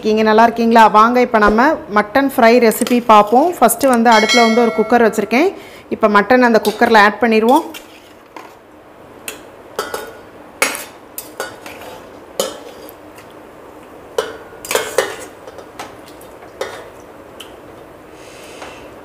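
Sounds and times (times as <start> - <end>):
steel utensils clinking on pot: 4.0 - 5.4, 9.3 - 12.8, 14.2 - 15.7.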